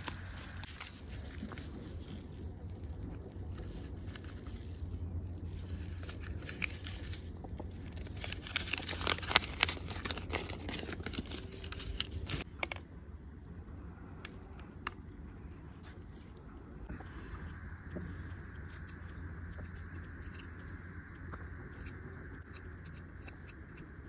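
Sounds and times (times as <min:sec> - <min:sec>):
dry grass and leaves rustling: 0:00.0 - 0:12.4
plastic sachet crinkling: 0:00.0 - 0:12.5.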